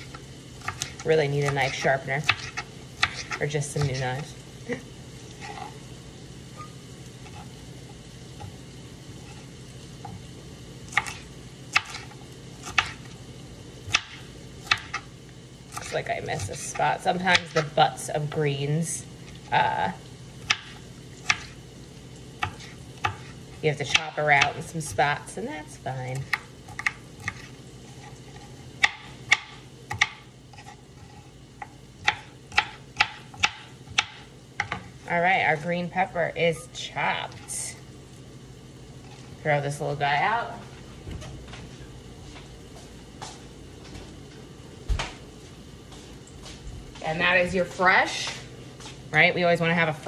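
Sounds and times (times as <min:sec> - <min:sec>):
faint steady hum: 0:00.0 - 0:50.0
knife chopping on cutting board: 0:13.9 - 0:15.0, 0:22.4 - 0:23.3, 0:28.8 - 0:30.8, 0:31.6 - 0:34.9.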